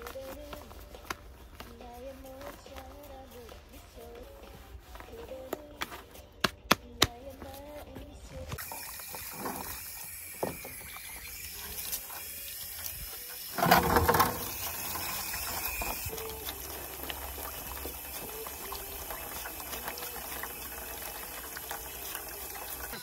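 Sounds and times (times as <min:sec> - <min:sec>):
water running: 0:08.5 - 0:23.0.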